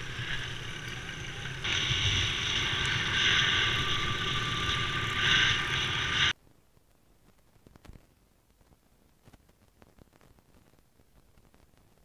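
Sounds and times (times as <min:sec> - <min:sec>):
motorbike engine drone: 0:00.0 - 0:06.4
rushing wind noise: 0:00.0 - 0:06.4.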